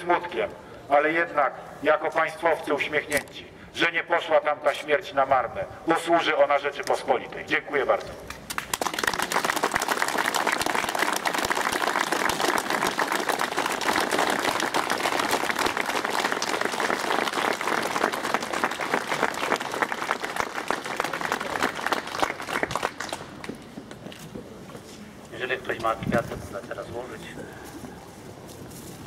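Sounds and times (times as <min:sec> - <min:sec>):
crowd applauding: 0:08.4 - 0:23.6.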